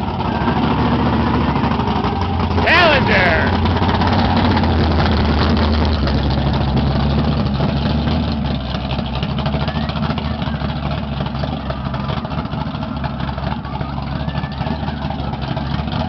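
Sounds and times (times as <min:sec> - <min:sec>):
car engine idling low rumble: 0:00.0 - 0:16.0.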